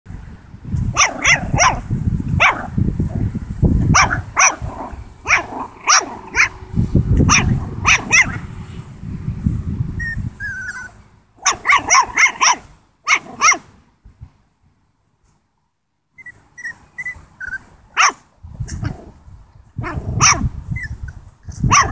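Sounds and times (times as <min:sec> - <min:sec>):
puppy barking in high yaps: 0:00.9 - 0:02.7, 0:03.9 - 0:06.6, 0:07.2 - 0:08.5, 0:10.0 - 0:13.7, 0:16.2 - 0:18.9, 0:19.8 - 0:21.0, 0:21.6 - 0:21.9
low rumble: 0:06.2 - 0:11.0.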